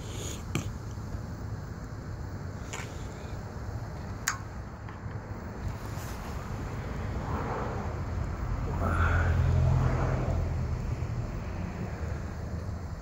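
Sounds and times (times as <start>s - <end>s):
engine rumble passing by: 5.2s - 13.0s.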